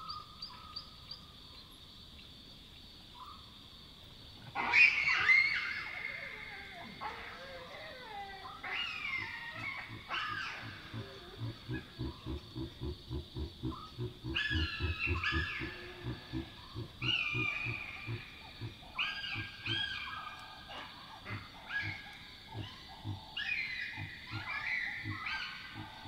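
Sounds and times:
baboon squealing calls: 4.6 - 11.9, 14.3 - 18.3
baboon low grunts: 9.1 - 19.8, 21.2 - 23.4.

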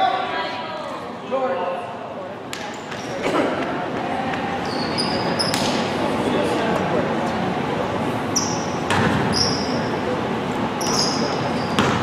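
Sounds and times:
crowd murmur: 0.0 - 12.0
sneakers squeaking on court: 2.6 - 3.4, 4.3 - 5.8, 8.3 - 9.9, 10.8 - 12.0
basketball bouncing: 8.8 - 9.4, 11.8 - 12.0.

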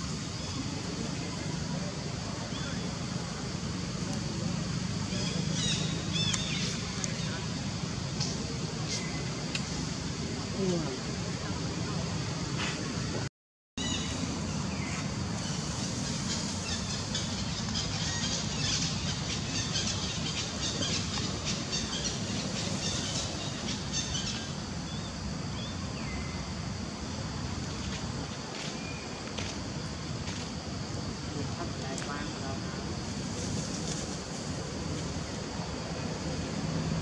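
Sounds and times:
steady background noise: 0.0 - 37.0.

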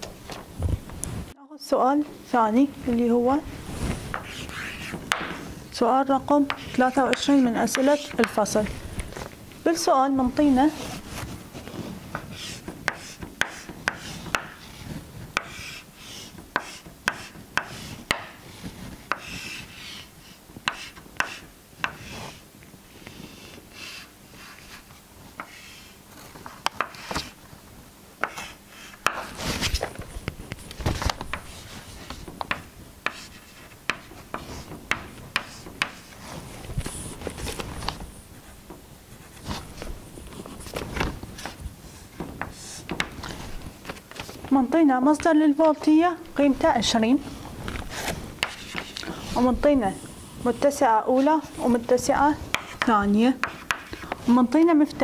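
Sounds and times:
chalk tapping on blackboard: 4.1 - 5.4, 6.4 - 8.5, 12.1 - 14.8, 15.4 - 18.4, 19.1 - 20.0, 20.6 - 22.4, 25.4 - 25.8, 26.6 - 27.3, 28.2 - 29.4, 31.3 - 36.2, 48.4 - 49.0, 52.5 - 54.2
chalk scratching on blackboard: 4.1 - 5.5, 6.5 - 8.4, 11.8 - 22.4, 23.0 - 25.9, 26.8 - 27.3, 28.2 - 29.7, 33.0 - 37.2, 48.0 - 51.8, 52.5 - 54.2
knocks on blackboard: 5.1 - 5.4.

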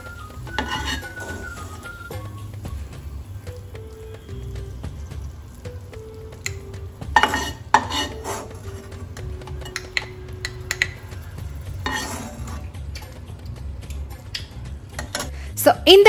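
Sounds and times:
ladle scraping in pan: 0.5 - 1.9, 7.0 - 9.8, 11.5 - 12.8.

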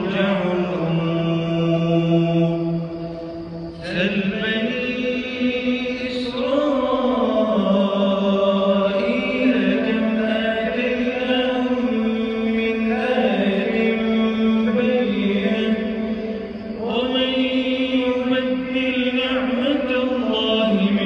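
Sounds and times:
man chanting melodically: 0.0 - 21.0.

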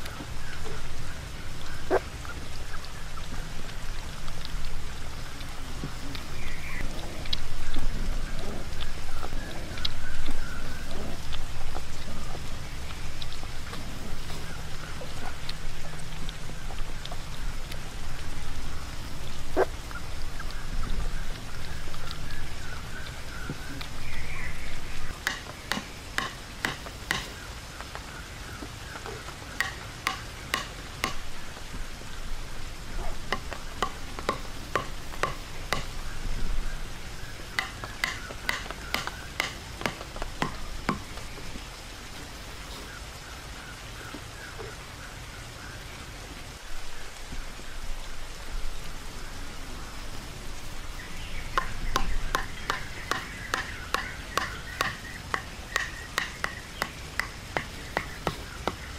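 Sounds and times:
stakes pounded with bamboo tube: 25.2 - 28.0, 29.6 - 31.2, 33.3 - 36.0, 37.6 - 41.2, 51.6 - 58.9.

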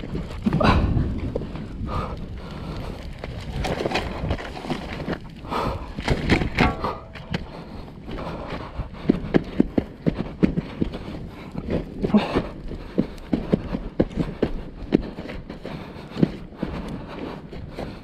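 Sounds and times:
plastic scraping and rustling: 2.9 - 7.5.

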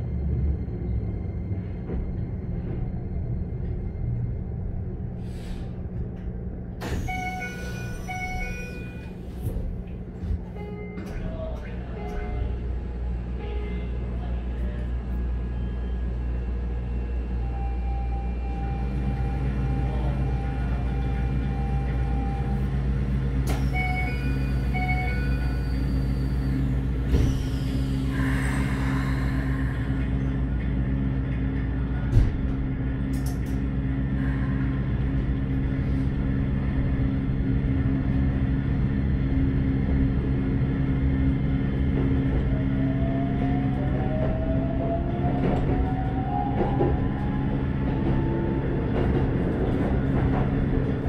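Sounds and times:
low hum of train equipment: 0.0 - 51.0
train doors opening: 5.3 - 12.6, 18.2 - 33.7
train doors thudding shut: 32.0 - 32.6.

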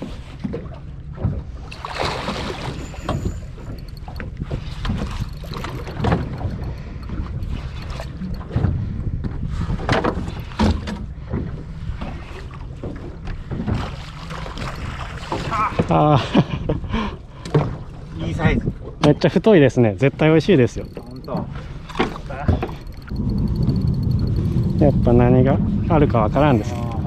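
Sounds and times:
knocks and splashes: 0.0 - 16.1, 17.4 - 18.1
water sloshing against boat hull: 0.0 - 27.0
wind buffeting microphone: 2.4 - 12.2, 20.7 - 27.0.

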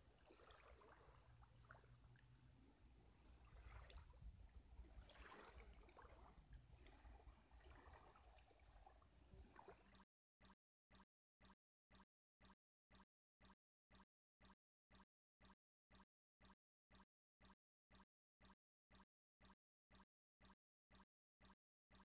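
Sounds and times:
lake water lapping: 0.0 - 10.6.

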